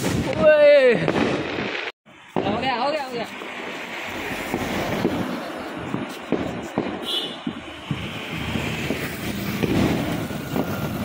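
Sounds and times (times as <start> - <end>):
distant firecrackers popping: 0.0 - 11.0
wind on microphone: 3.4 - 11.0.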